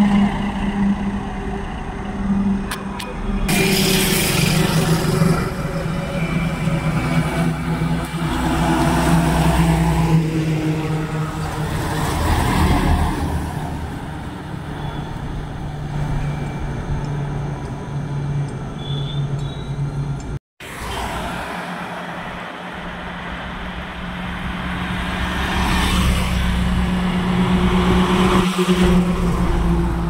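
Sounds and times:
diesel trucks driving past: 0.0s - 30.0s.

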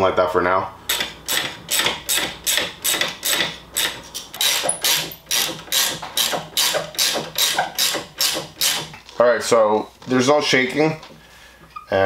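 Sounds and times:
ratchet wrench clicking: 0.9s - 8.9s.

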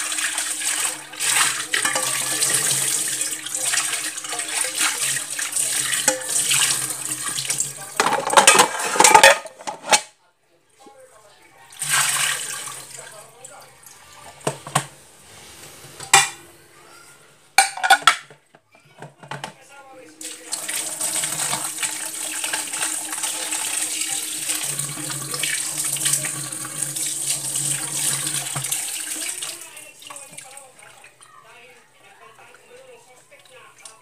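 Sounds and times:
tap water running into basin: 0.0s - 9.3s, 11.7s - 14.9s, 20.0s - 31.4s
dishes clattering: 0.1s - 10.1s, 14.2s - 15.0s, 16.0s - 16.5s, 17.6s - 19.6s, 20.6s - 26.7s.

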